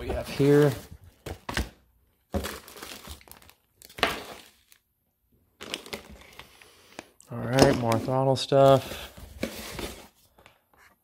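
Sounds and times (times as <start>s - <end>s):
plastic packaging crinkling: 2.3s - 4.8s, 5.6s - 7.1s.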